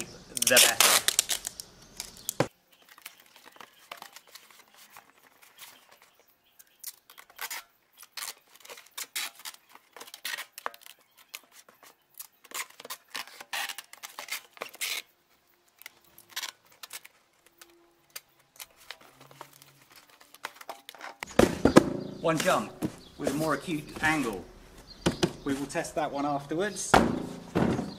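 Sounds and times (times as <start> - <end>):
tape pulled off roll: 0.0 - 6.0.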